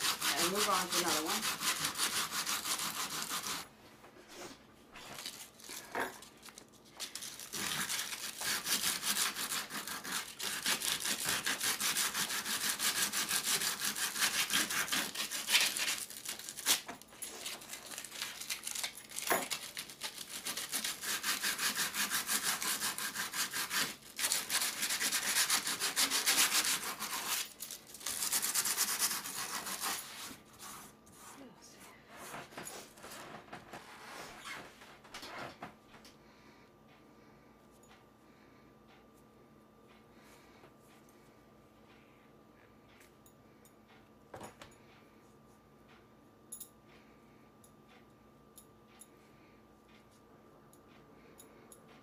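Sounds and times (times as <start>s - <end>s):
sanding sponge rubbing plastic: 0.0s - 3.6s, 7.5s - 16.0s, 20.2s - 30.9s.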